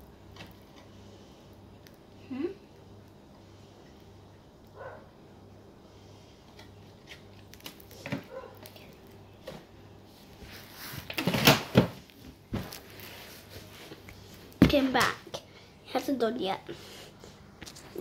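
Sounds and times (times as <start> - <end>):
household knocks and clatter: 11.1 - 12.8.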